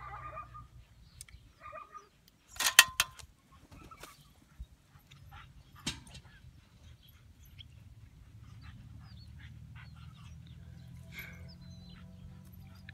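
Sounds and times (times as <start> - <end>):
dogs whining and yelping: 0.0 - 2.2, 3.5 - 12.9.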